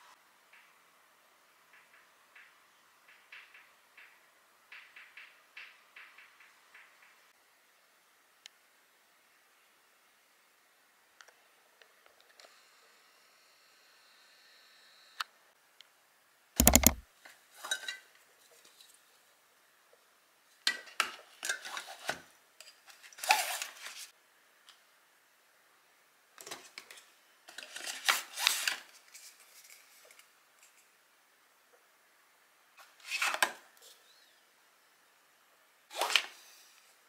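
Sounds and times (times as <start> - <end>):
plastic bottles clicking together: 16.6 - 17.0.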